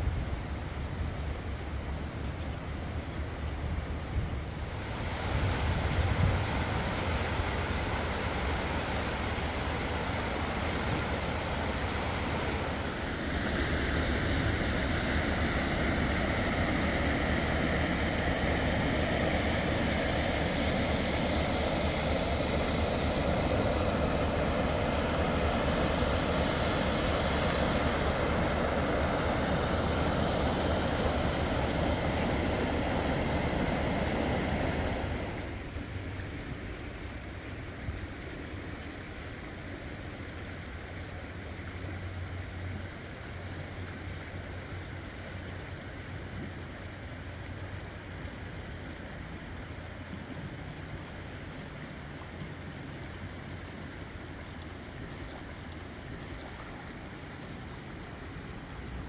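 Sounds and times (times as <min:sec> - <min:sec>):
river rushing over rocks: 0:04.8 - 0:48.6.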